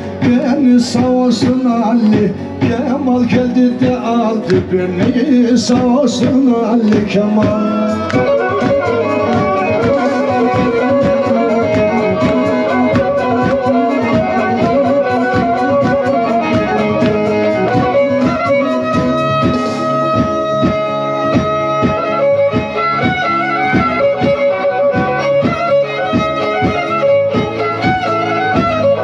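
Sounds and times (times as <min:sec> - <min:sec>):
man singing: 0:00.0 - 0:18.9
bowed fiddle playing: 0:03.1 - 0:29.0.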